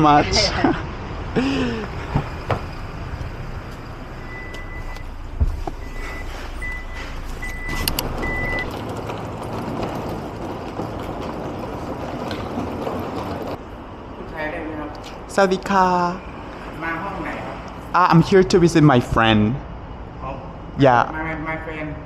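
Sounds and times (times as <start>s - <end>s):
car engine running: 1.6s - 13.7s
short electronic beeps: 5.8s - 8.7s.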